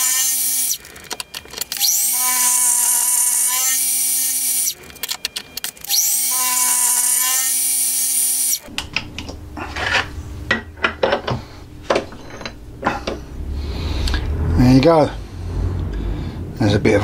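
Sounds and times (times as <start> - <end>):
milling machine spindle whine: 0.0 - 8.7.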